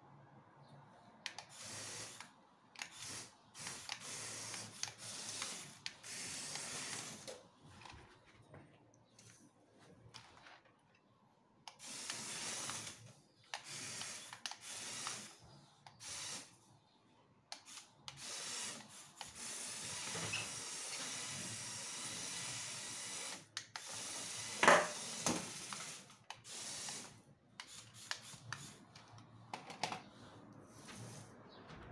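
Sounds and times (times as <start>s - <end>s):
wheels hissing on tiles: 1.3s - 7.4s, 11.7s - 16.7s, 17.6s - 29.0s, 29.8s - 31.8s.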